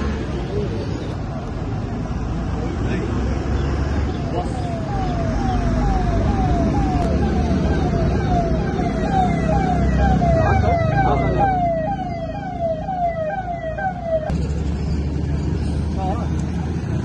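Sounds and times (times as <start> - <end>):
road traffic rumble: 0.0 - 17.0
electronic siren-like warning chirps: 4.2 - 14.3.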